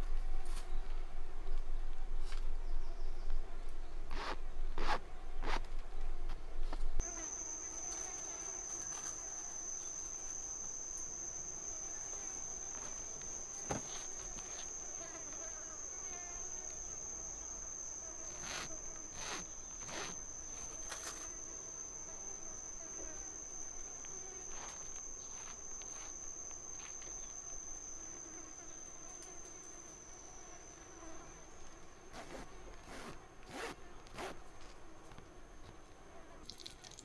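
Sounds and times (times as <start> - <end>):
insect calling high tone: 7.0 - 31.7.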